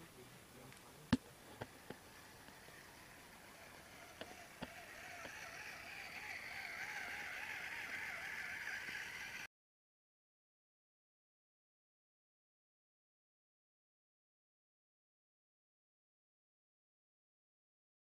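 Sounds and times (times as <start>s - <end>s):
small electric motor whining: 1.5s - 9.5s.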